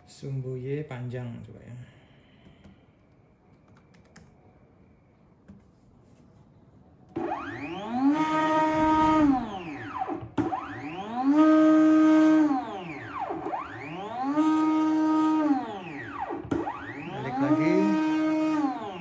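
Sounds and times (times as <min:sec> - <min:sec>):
stepper motor whine: 0:07.2 - 0:19.0.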